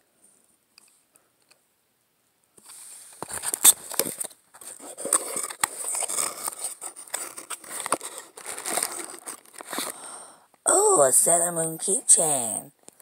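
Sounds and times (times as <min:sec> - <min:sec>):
cardboard box scraping and rustling: 0:02.7 - 0:09.9.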